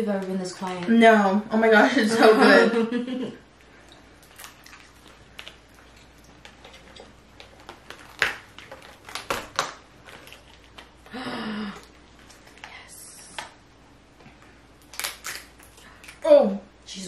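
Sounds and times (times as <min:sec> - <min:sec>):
crab shells cracking: 0:04.2 - 0:11.2, 0:14.8 - 0:16.2.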